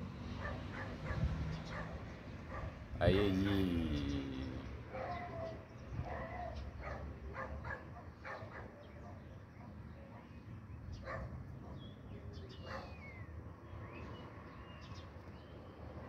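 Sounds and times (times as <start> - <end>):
dog barking: 0.4 - 2.8, 4.9 - 10.4, 11.0 - 11.9, 12.6 - 13.0.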